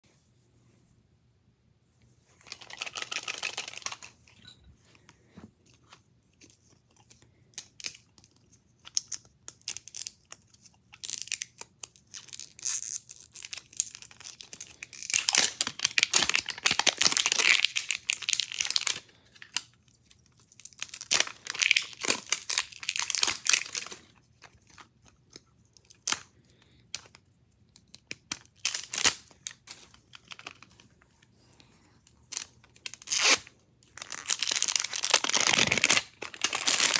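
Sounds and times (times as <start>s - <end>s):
wrapper crinkling and tearing: 2.4s - 4.1s, 6.9s - 26.3s, 28.0s - 31.0s, 32.2s - 36.9s.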